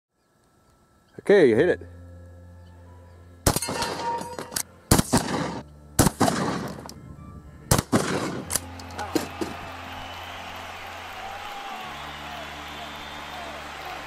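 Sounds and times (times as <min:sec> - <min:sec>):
shotgun shots echoing: 0:03.4 - 0:06.9, 0:07.7 - 0:09.3.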